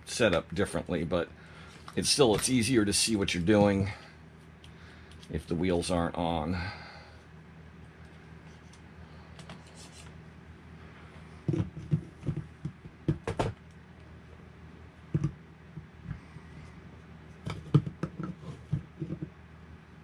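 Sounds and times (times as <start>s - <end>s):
knocks of parts on workbench: 11.5s - 13.6s.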